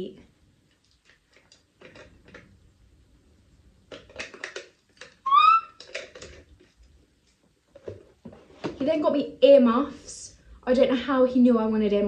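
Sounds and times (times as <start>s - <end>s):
plastic bottle cap clicks and rustles: 0.7s - 2.5s, 3.9s - 8.8s
loud high squeak: 5.2s - 5.8s.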